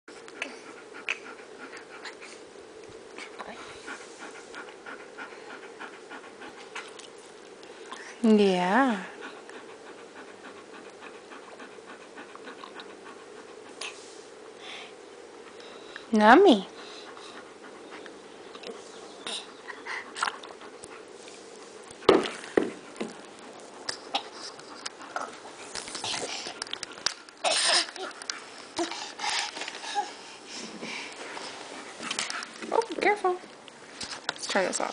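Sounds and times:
baby panting: 19.2 - 20.3, 28.8 - 31.2.

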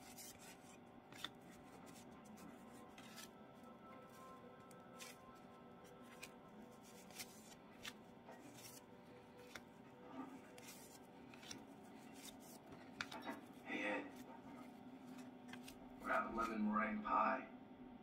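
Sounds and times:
cards flicking: 6.1 - 8.8, 10.6 - 13.4.

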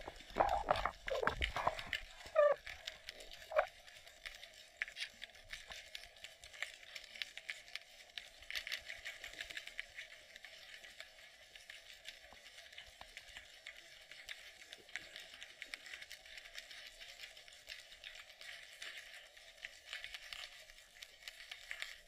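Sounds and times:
muffled underwater hum: 0.0 - 3.8
underwater crackle of tiny clicks: 0.0 - 22.0.

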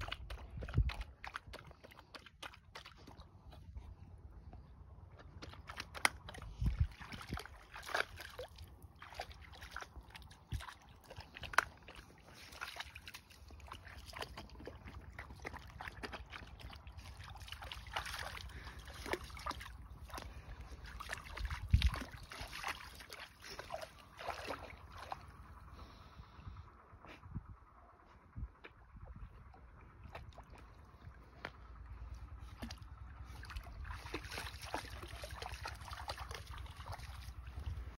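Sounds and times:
puppy lapping water: 0.0 - 25.4, 29.2 - 37.9
water splashing: 5.4 - 25.4, 32.4 - 37.9.

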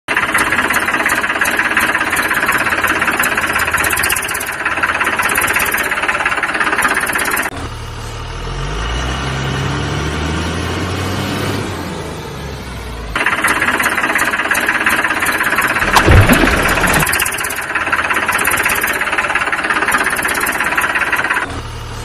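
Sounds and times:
tractor engine knocking: 0.1 - 7.5, 13.1 - 22.0
truck engine revving: 7.0 - 19.5.

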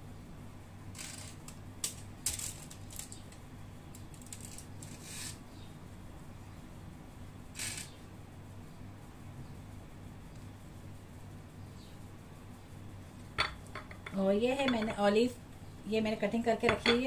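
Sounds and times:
low steady hum: 0.0 - 17.0
clicks and crinkles of foil: 1.0 - 5.4.

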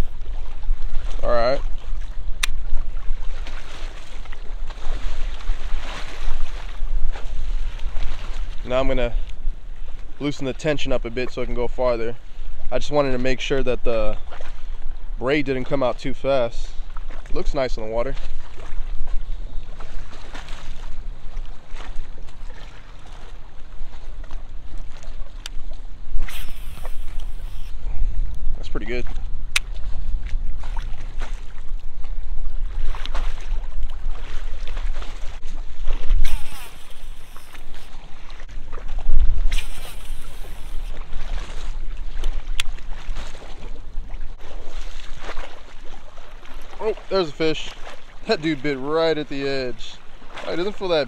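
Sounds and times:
water splashes: 0.0 - 9.3, 15.6 - 27.8, 28.7 - 51.0
wind on microphone: 0.0 - 10.2, 18.2 - 46.7
water lapping and sloshing: 0.0 - 51.0
sharp click: 2.4 - 2.6, 26.2 - 27.7, 36.2 - 37.8, 39.5 - 40.8.

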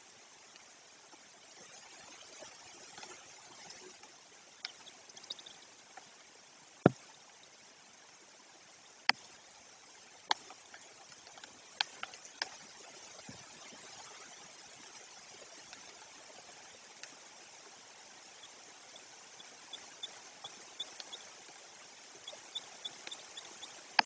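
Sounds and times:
steady rain hiss: 0.0 - 24.0
large raindrops tapping: 10.2 - 14.3.

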